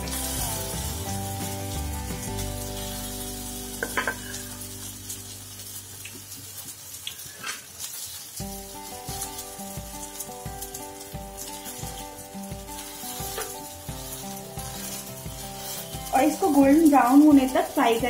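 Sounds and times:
background music with beat: 0:00.0 - 0:05.4, 0:08.4 - 0:18.0
patties sizzling in oil: 0:00.0 - 0:18.0
wooden spatula scraping: 0:07.2 - 0:18.0.

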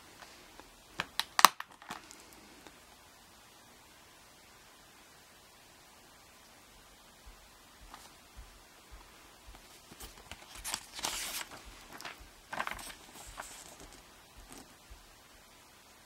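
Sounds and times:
paper rustling on plastic: 0:09.6 - 0:14.8.

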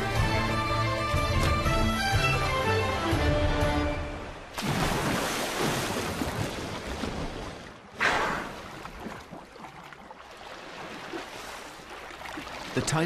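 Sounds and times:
water rushing: 0:00.0 - 0:13.0
water sloshing: 0:04.3 - 0:13.0
sharp splash: 0:04.4 - 0:13.0
dolphin splashing into water: 0:04.5 - 0:09.7.

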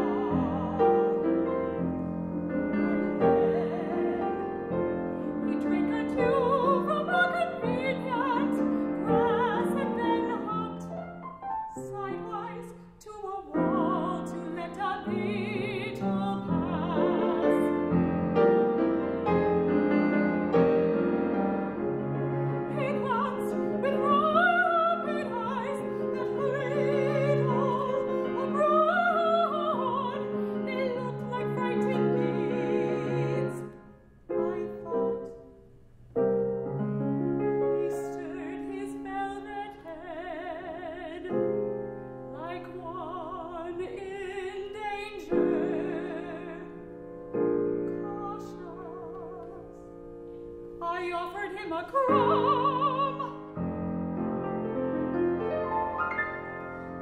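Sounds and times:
woman singing operatically: 0:00.0 - 0:01.6, 0:02.8 - 0:10.9, 0:11.7 - 0:17.8, 0:22.7 - 0:35.3, 0:37.8 - 0:41.5, 0:42.4 - 0:46.8, 0:47.9 - 0:49.8, 0:50.8 - 0:53.6
grand piano: 0:00.0 - 0:57.0.

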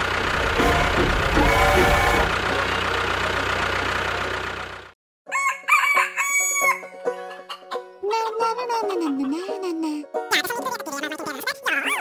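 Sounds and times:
motor engine running: 0:00.0 - 0:05.0
rooster crowing: 0:05.3 - 0:07.0.

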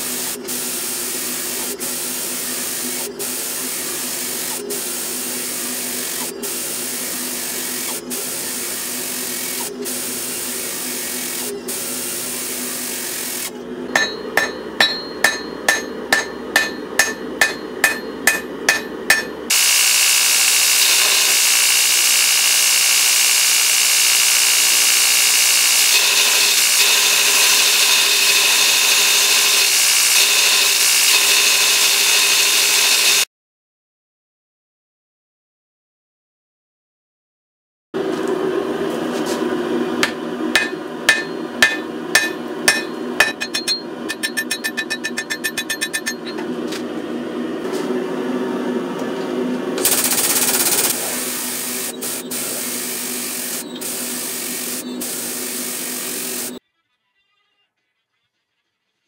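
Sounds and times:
hydraulic press humming: 0:00.0 - 0:33.2, 0:38.0 - 0:47.1, 0:48.9 - 0:56.6
belt grinder grinding steel: 0:05.3 - 0:33.3, 0:40.0 - 0:46.4, 0:49.8 - 0:56.6
hammer ringing on anvil: 0:13.9 - 0:19.5, 0:40.0 - 0:46.4.

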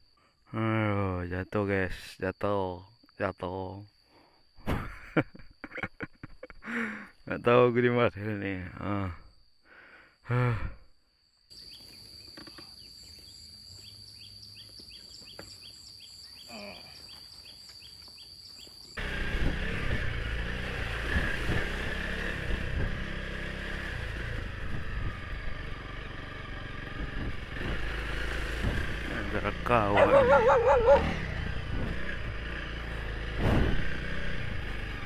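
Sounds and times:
high insect whine with chirps: 0:00.0 - 0:20.2, 0:28.6 - 0:32.3
motorcycle engine and road noise: 0:19.0 - 0:35.0.

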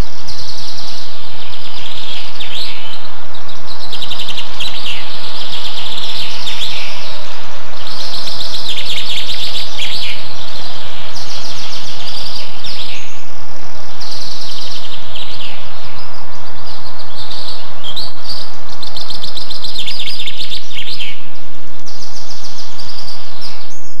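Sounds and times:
high chirping trills: 0:00.0 - 0:13.3.

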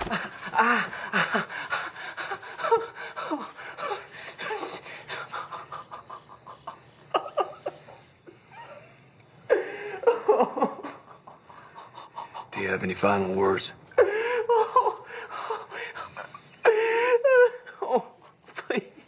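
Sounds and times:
panting and whimpers: 0:00.0 - 0:06.8, 0:11.2 - 0:12.7, 0:14.0 - 0:18.5
young man sobbing and gasping: 0:00.0 - 0:12.5, 0:13.9 - 0:19.0.

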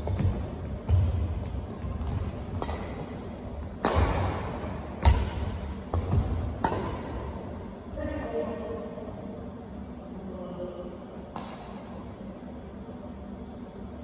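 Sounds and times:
racket striking shuttlecock: 0:00.0 - 0:07.7, 0:11.3 - 0:12.0.

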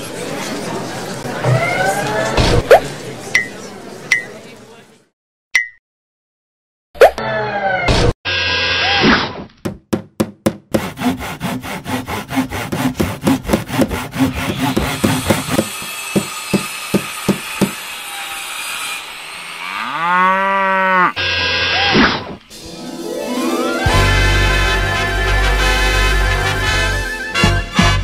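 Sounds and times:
sawing and grinding: 0:10.7 - 0:20.4.

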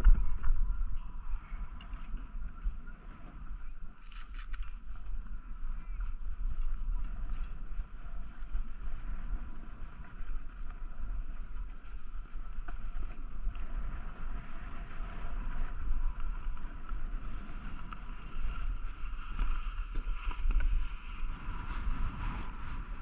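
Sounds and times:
wind buffeting microphone: 0:00.0 - 0:23.0
snowboard sliding on snow: 0:04.8 - 0:23.0.

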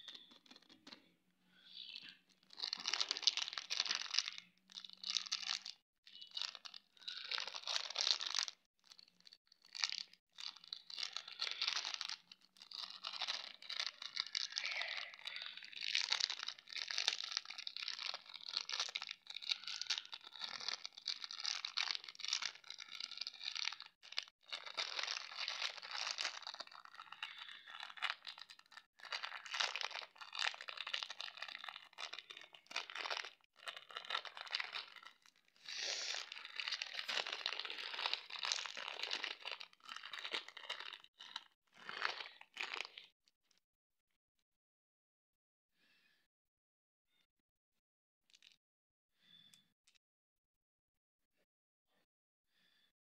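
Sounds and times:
plastic candy bag crinkling: 0:00.0 - 0:01.0, 0:01.8 - 0:43.1.

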